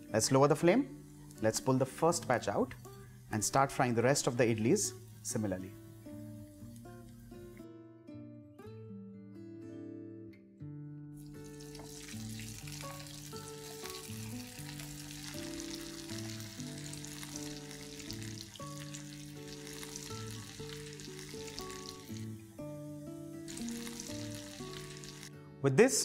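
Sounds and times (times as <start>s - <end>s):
background music: 0.0s - 26.0s
food deep-frying in oil: 11.2s - 22.4s, 23.4s - 25.3s.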